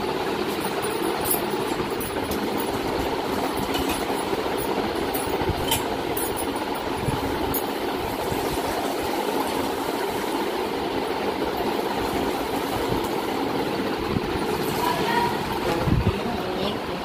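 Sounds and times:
steady rushing noise: 4.4 - 17.0.

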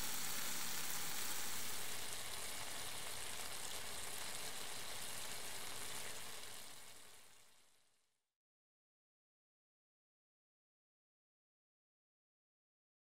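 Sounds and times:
sauce sizzling in a pot: 0.0 - 8.0.

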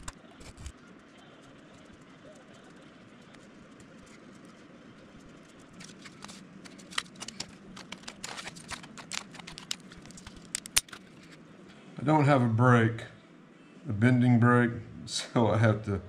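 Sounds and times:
faint room hum: 0.0 - 16.0
metal sheet clicks and taps: 6.2 - 11.0.

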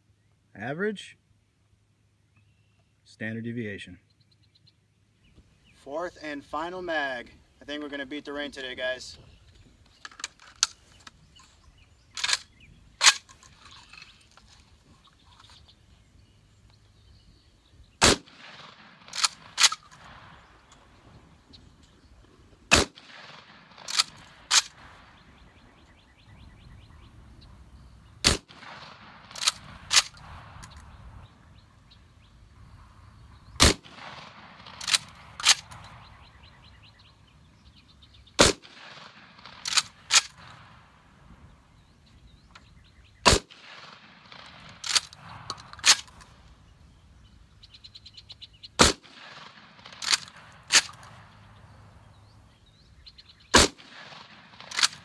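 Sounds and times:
shotgun shots: 18.0 - 20.7, 22.7 - 25.2, 28.2 - 30.7, 33.6 - 36.1, 38.4 - 41.0, 43.2 - 46.1, 48.8 - 51.4, 53.5 - 55.0.

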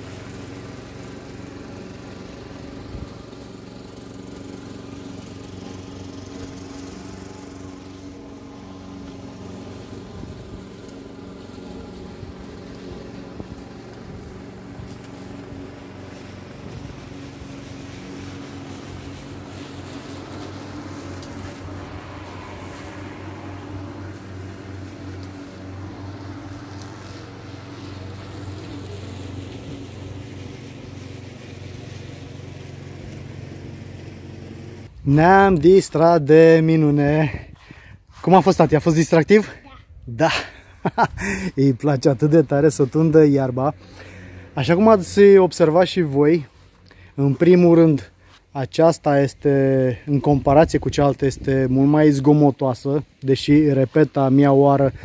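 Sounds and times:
lawn mower engine running: 0.0 - 55.0.

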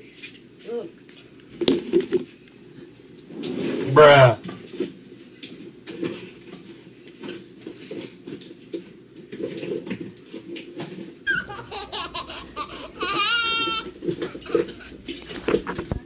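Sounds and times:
child squealing: 11.3 - 15.0.

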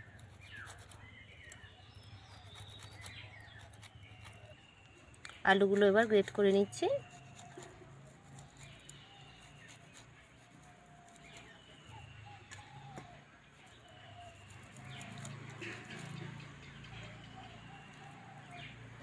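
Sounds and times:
birds calling: 0.0 - 19.0
potato rasping on metal grater: 5.7 - 11.6.

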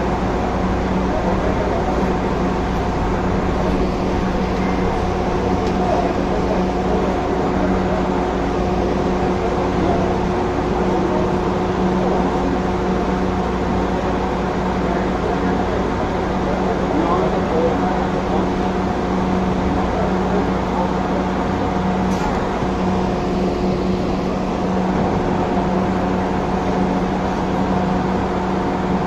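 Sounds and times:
constant hum: 0.0 - 29.0
train rolling on track: 0.0 - 29.0.

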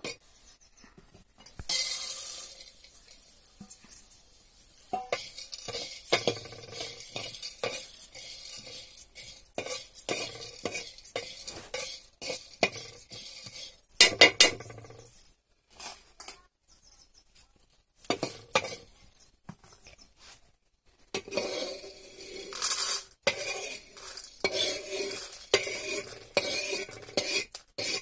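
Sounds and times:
metal spatula scraping griddle: 1.5 - 3.8, 4.7 - 14.8, 18.1 - 18.9, 21.1 - 28.0.

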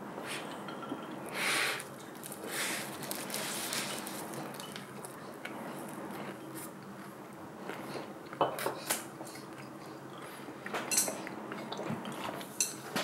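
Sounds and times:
loud breaths through the nose: 1.3 - 3.5
person chewing food: 1.9 - 12.6.

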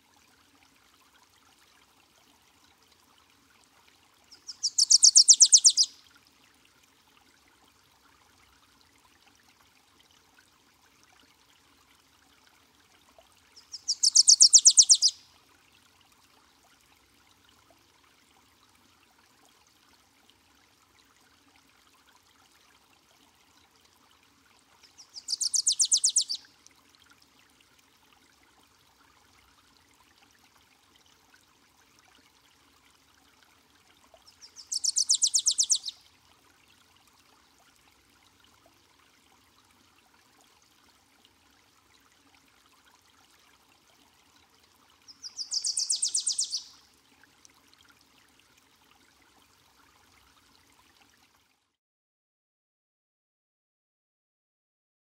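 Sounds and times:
faint steady hiss: 0.0 - 51.4
warbler singing: 4.4 - 5.9, 13.6 - 15.2, 25.0 - 26.4, 34.5 - 35.9, 45.1 - 46.7.

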